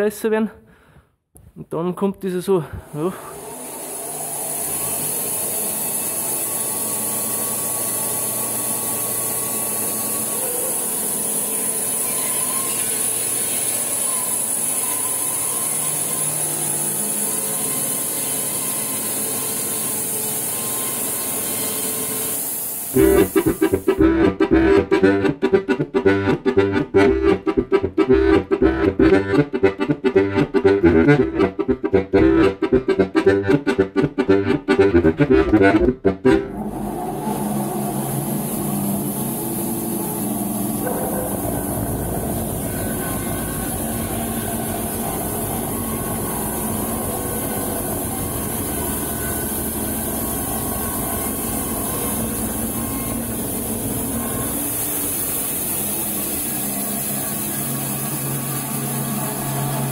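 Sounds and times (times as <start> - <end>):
band sawmill whining: 2.9 - 59.9
rhythmic instrumental music: 23.0 - 36.5.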